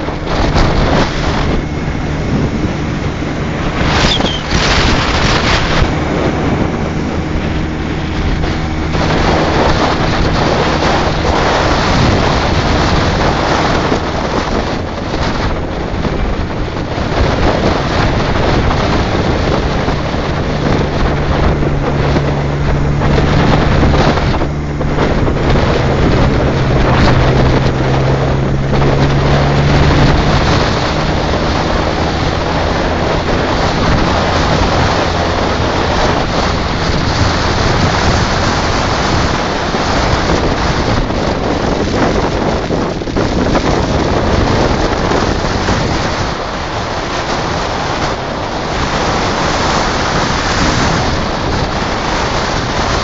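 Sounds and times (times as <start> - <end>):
motorcycle engine humming: 0.0 - 53.0
wind rush on microphone: 0.0 - 53.0.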